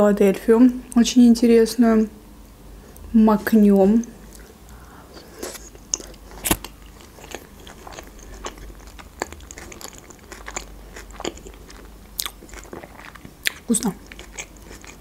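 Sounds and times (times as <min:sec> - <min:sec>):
person chewing food: 0:04.0 - 0:15.0.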